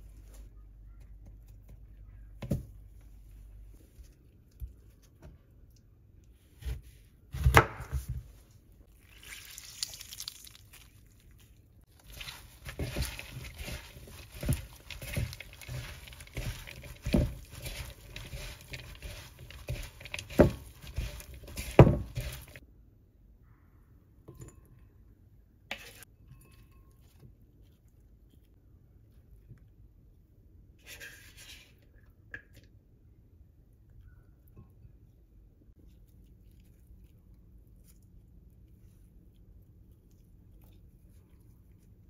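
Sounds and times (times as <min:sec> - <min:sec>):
rustling: 0:08.2 - 0:22.6.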